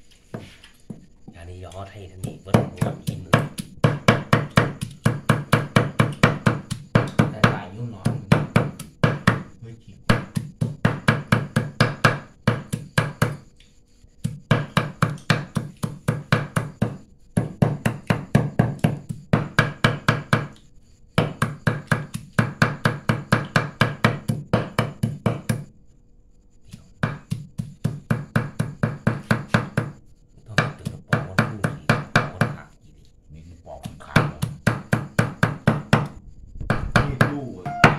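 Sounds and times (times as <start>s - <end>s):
cleaver chopping on wooden block: 2.2s - 13.5s, 14.2s - 20.6s, 21.2s - 25.7s, 26.7s - 30.0s, 33.8s - 37.4s.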